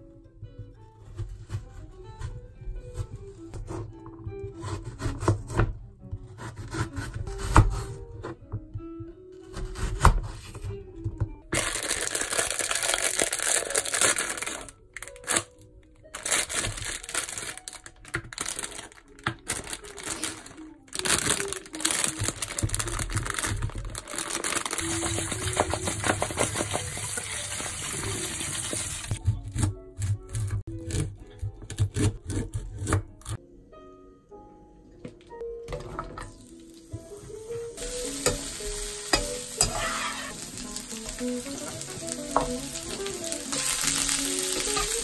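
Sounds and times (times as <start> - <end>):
background music: 0.0 - 45.0
plastic bag crinkling and tearing: 11.6 - 27.5, 40.1 - 45.0
tap water running into colander: 24.8 - 29.2.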